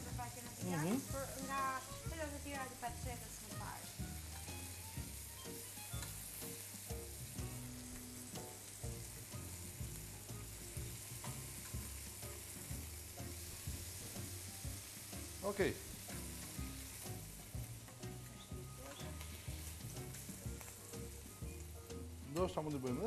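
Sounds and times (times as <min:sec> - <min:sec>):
meat sizzling in a frying pan: 0:00.0 - 0:23.0
metal tongs clicking on pan: 0:11.2 - 0:11.8.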